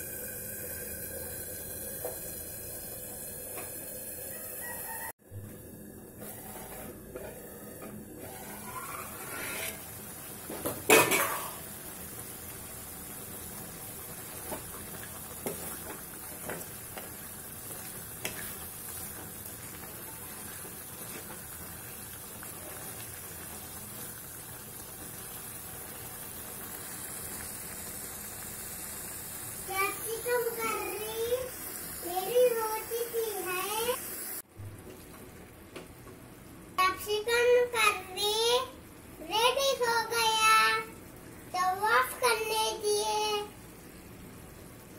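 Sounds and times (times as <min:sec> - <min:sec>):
spatula stirring curry in pan: 0:08.2 - 0:10.0.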